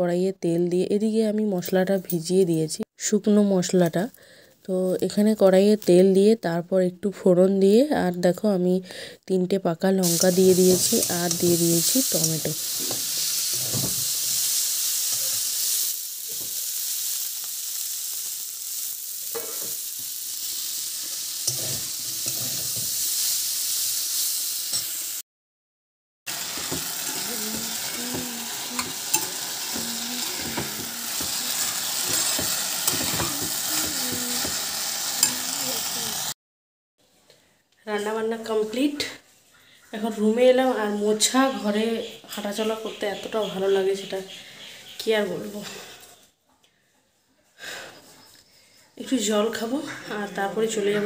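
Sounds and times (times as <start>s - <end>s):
vegetables sizzling in oil: 10.0s - 25.2s, 26.3s - 36.4s
metal spatula scraping a pan: 21.4s - 23.3s, 26.4s - 34.5s.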